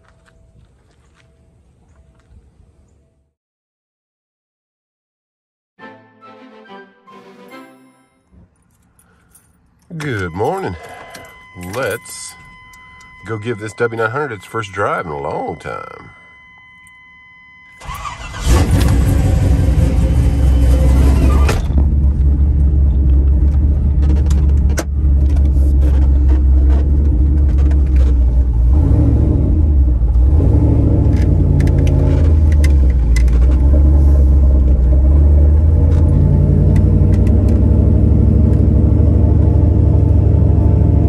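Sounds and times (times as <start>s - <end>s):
truck engine rumbling: 8.3s - 16.9s, 17.8s - 41.0s.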